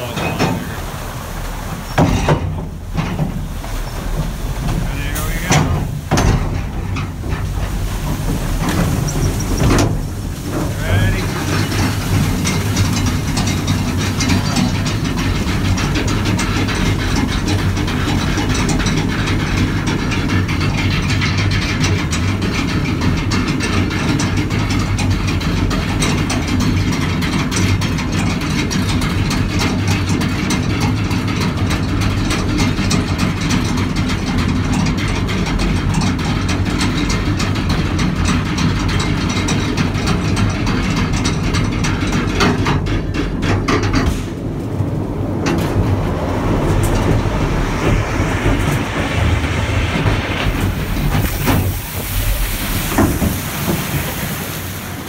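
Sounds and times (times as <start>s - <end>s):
constant low hum: 0.0s - 55.0s.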